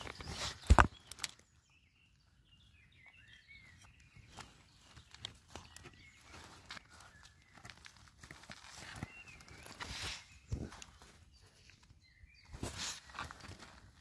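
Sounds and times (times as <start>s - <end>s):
faint bird chirps: 0.0s - 14.0s
ticks and rustles in leaf litter: 4.2s - 11.8s.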